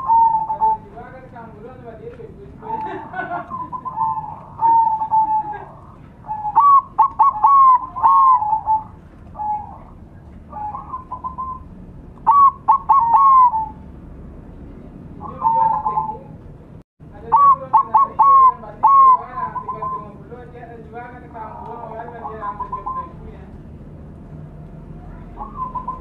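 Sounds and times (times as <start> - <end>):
doves cooing: 0.0 - 1.3, 2.6 - 13.9, 15.2 - 16.4, 17.2 - 20.3, 21.4 - 23.2, 25.0 - 26.0.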